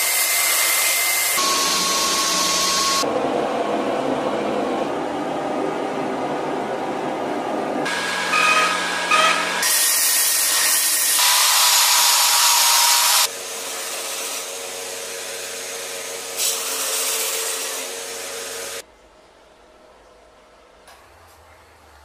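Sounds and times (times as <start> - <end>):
belt grinder grinding steel: 7.9 - 14.5.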